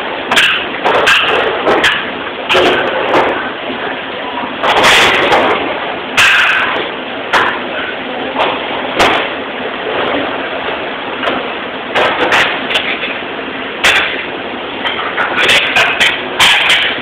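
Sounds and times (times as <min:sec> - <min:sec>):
dishes and trays clattering: 0:12.0 - 0:13.2, 0:13.8 - 0:17.0.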